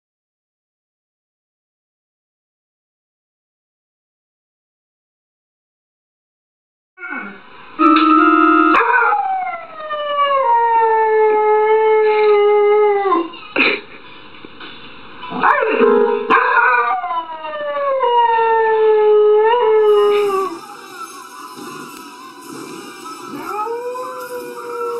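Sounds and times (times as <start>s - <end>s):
electronic keyboard chord: 7.8s - 8.8s, 15.8s - 16.4s
dog howling: 8.7s - 13.3s, 16.3s - 24.9s.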